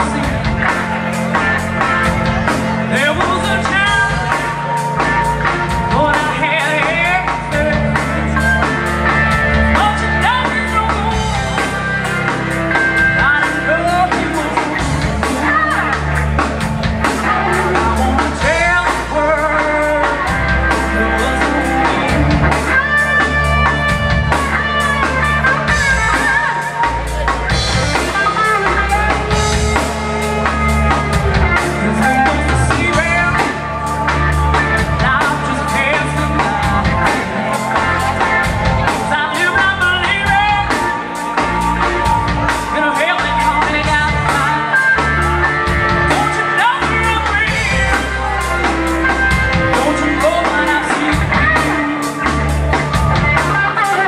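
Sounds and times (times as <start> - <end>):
blues-rock band playing: 0.0 - 54.0
woman singing: 17.2 - 22.6, 31.5 - 40.9, 41.8 - 45.1, 49.7 - 52.4.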